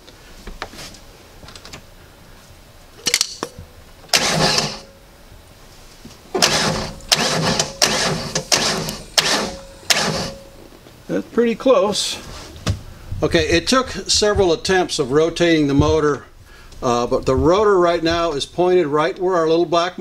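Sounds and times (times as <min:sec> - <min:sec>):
starter motor cranking engine: 0:04.1 - 0:04.9, 0:06.3 - 0:10.5.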